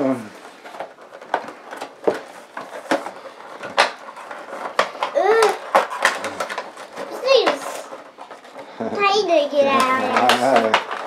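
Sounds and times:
child vocal sound: 5.1 - 5.6.

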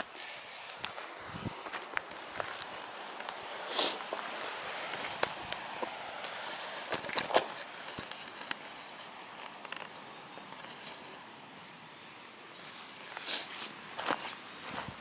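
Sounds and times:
footsteps on dry leaves and dirt: 0.0 - 9.0, 12.6 - 15.0.

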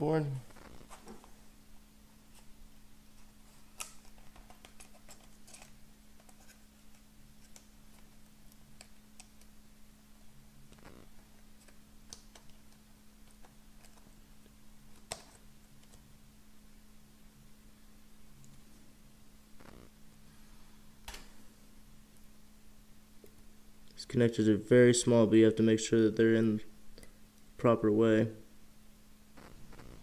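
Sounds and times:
steady low hum: 0.0 - 30.0
small parts clicking and tapping: 3.8 - 9.5.

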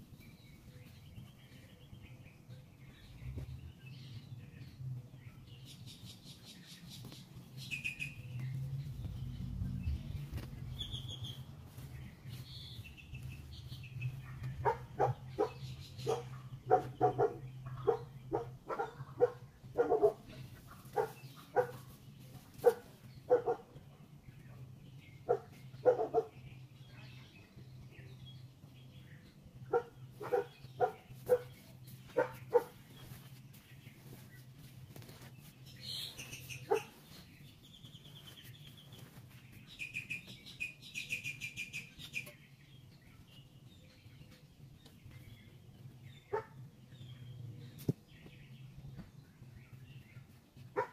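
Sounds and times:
bird chirps: 0.1 - 23.6, 35.0 - 50.4
dog barking: 14.2 - 20.3, 21.0 - 21.8, 22.6 - 23.8, 25.3 - 26.4, 29.7 - 31.6, 32.2 - 32.8, 36.6 - 37.0, 46.3 - 46.6.

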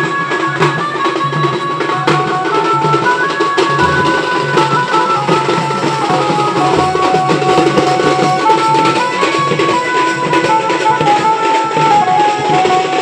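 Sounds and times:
fast drumming: 0.1 - 13.0
melody of held notes: 3.7 - 8.5.

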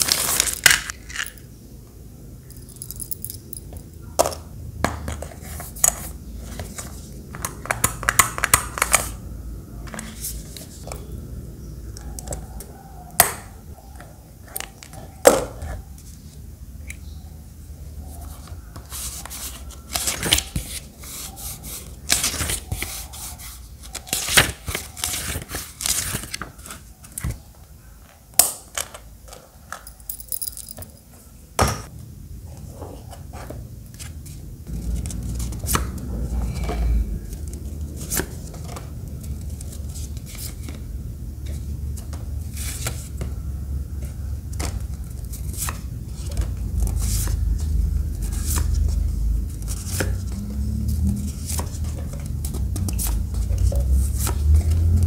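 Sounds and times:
paper rustling: 0.0 - 1.3, 18.2 - 27.4.

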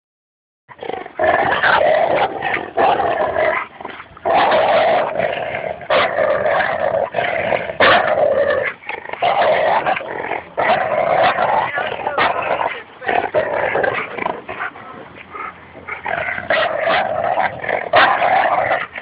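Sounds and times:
dog growling: 0.7 - 19.0.

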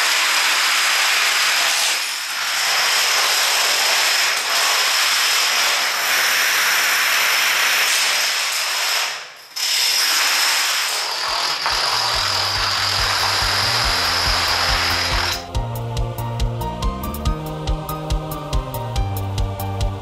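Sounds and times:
plastic dominoes clattering: 0.0 - 15.4.

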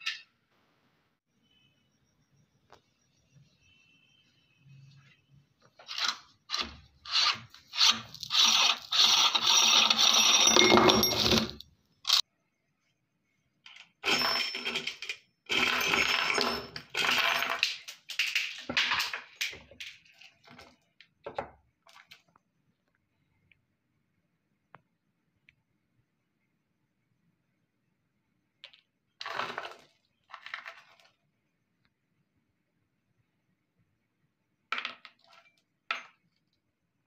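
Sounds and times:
glass marbles clattering on metal: 8.1 - 12.2, 14.0 - 20.2.

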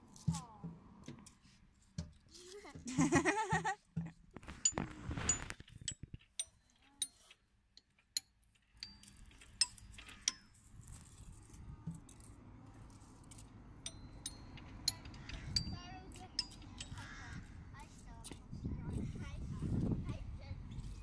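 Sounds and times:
plastic toy clicks and clinks: 4.4 - 17.2.

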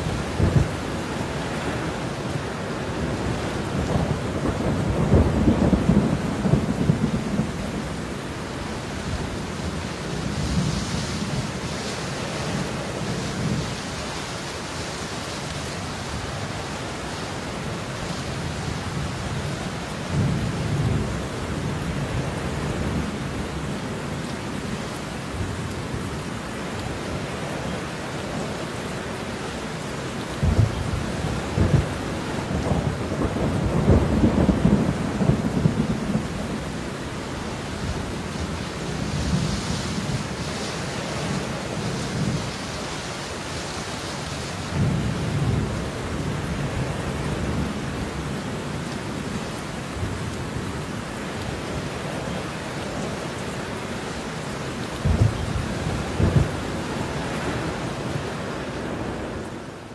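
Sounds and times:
steady rain: 0.0 - 59.9
rolling thunder: 3.1 - 8.1, 30.4 - 37.2, 55.0 - 58.3.

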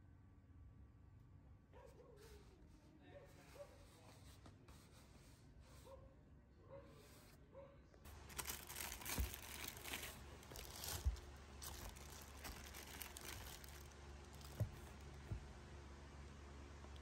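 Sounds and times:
plastic bags crinkling: 8.1 - 15.4.

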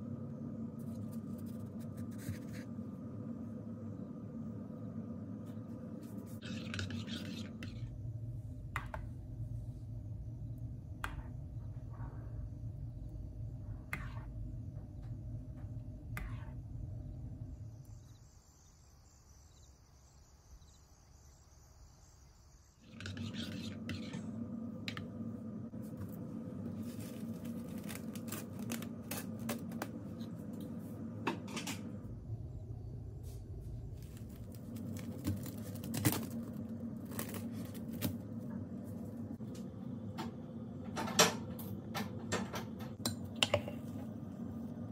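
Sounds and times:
steady low hum: 0.0 - 44.9
spoon stirring thick batter: 6.1 - 7.9, 22.8 - 25.2.

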